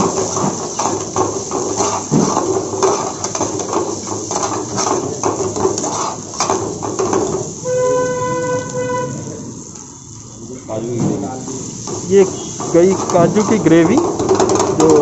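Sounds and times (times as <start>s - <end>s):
ladle scraping frying pan: 0.0s - 9.3s.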